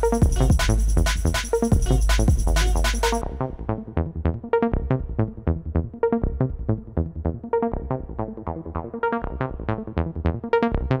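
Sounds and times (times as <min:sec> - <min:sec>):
steady low beat: 0:00.0 - 0:03.9.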